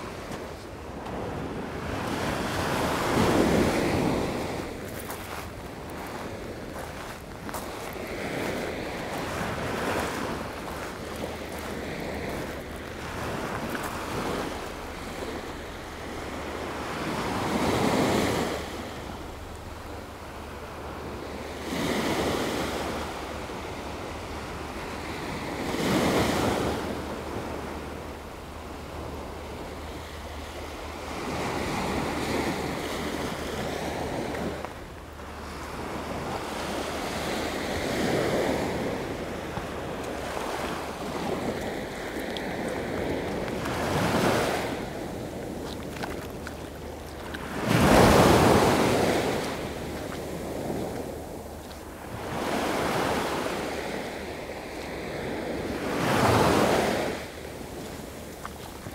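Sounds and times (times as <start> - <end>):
surf breaking on sandy beach: 0.0 - 58.9
wind on microphone: 0.0 - 58.9.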